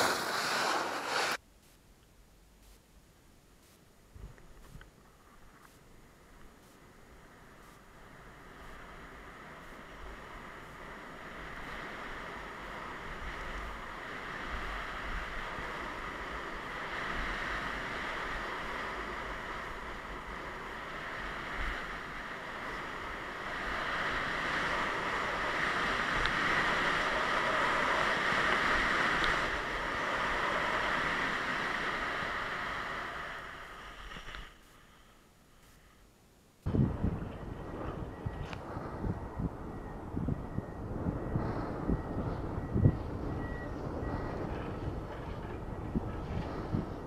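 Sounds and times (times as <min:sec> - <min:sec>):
skis scraping over snow: 0:00.0 - 0:01.4, 0:10.1 - 0:35.9
wind buffeting microphone: 0:36.7 - 0:47.0.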